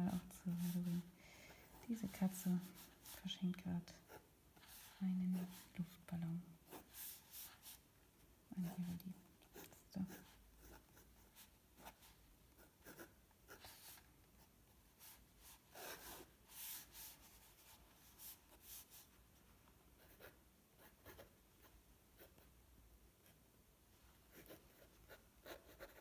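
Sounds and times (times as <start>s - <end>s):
pen scratching on paper: 0.1s - 1.0s, 4.0s - 6.0s, 6.7s - 7.8s, 8.6s - 14.0s, 15.0s - 19.1s, 20.0s - 22.4s, 24.3s - 26.0s.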